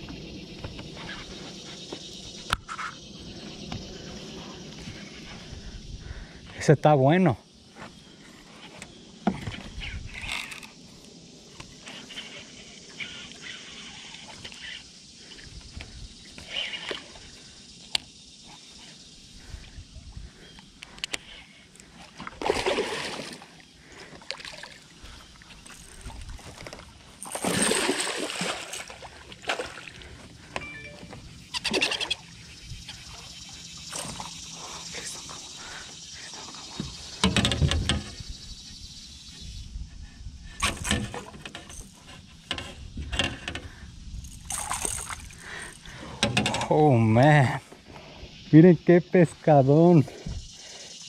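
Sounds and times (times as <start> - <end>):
fish thrashing and splashing: 22.1 - 23.6, 24.2 - 30.1, 44.4 - 45.9
water splashing: 22.2 - 23.6, 27.2 - 30.1.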